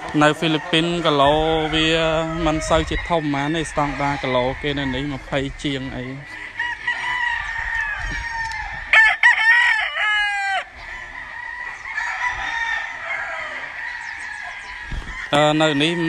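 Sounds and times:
distant roosters crowing and clucking: 0.0s - 16.0s
rooster crowing loudly: 0.4s - 5.3s, 6.2s - 15.8s.

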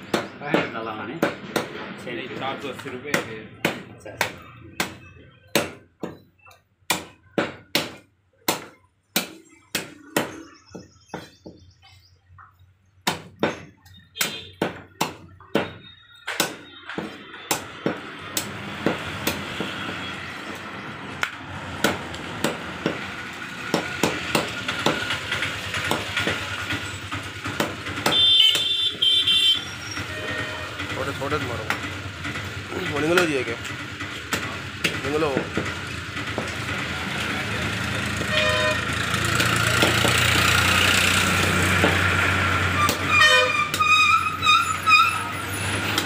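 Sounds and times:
cleaver chopping on wooden block: 0.0s - 1.8s, 2.8s - 6.3s, 6.9s - 11.6s, 13.0s - 19.9s, 21.2s - 25.2s, 25.8s - 26.4s, 27.4s - 28.8s, 34.3s - 35.7s, 39.3s - 40.2s.

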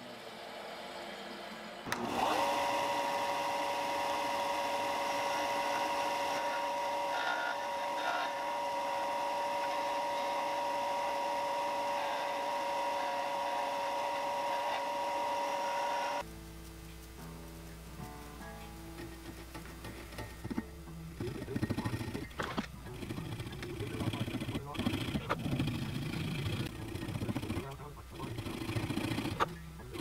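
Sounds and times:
bench sander motor whining: 0.0s - 16.2s, 19.4s - 30.0s.

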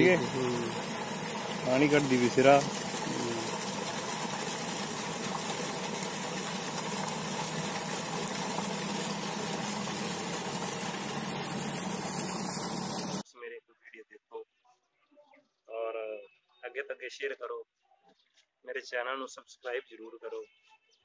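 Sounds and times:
pump humming: 0.0s - 13.2s
water gushing into tank: 0.0s - 13.2s.

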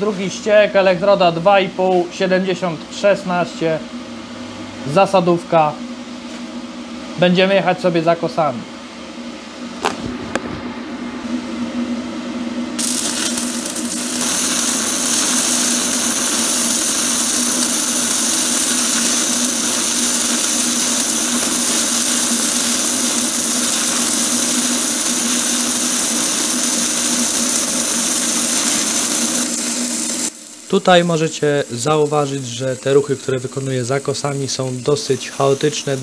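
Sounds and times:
welding arc hissing: 12.8s - 36.0s.

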